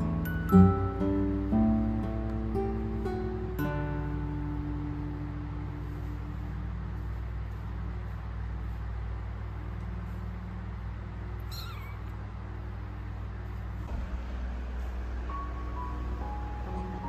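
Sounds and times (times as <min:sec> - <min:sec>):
low rumble: 0:04.9 - 0:17.0
kitten meowing: 0:11.4 - 0:12.2.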